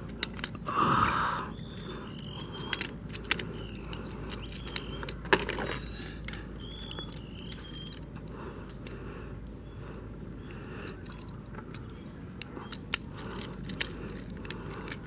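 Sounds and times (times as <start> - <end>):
plastic toy joints clicking: 1.7 - 8.9, 10.8 - 15.0.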